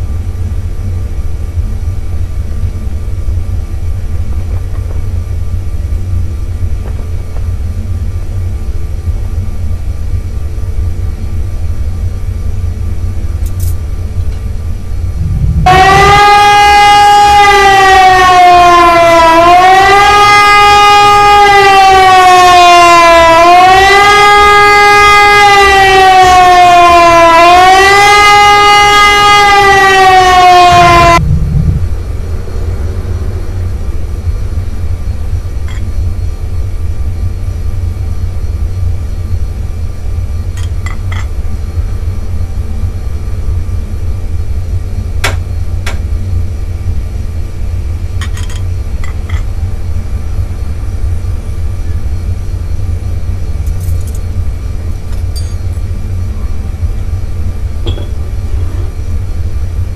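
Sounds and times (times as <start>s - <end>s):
low rumble: 0.0s - 18.3s, 30.2s - 59.9s
siren-like tone: 15.0s - 36.4s, 57.8s - 58.2s.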